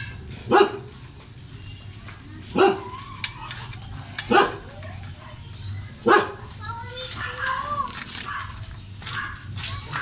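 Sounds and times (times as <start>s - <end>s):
dog barking: 0.5s - 0.9s, 2.5s - 3.0s, 4.3s - 4.7s, 6.0s - 6.5s, 8.2s - 9.4s.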